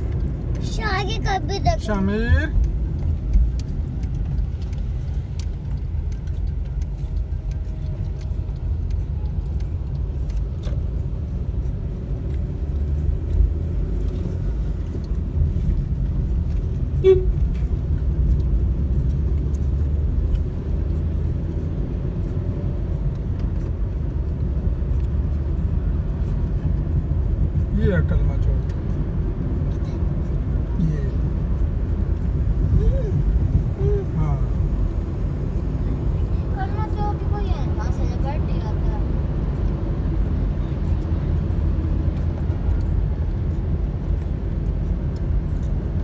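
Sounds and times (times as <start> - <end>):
car driving in city traffic: 0.0 - 46.0
vehicle horn toot: 17.0 - 17.4.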